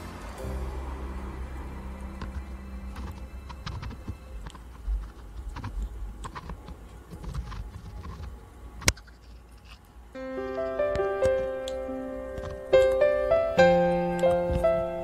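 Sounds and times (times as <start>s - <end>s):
piano music: 0.0s - 5.6s, 10.2s - 15.0s.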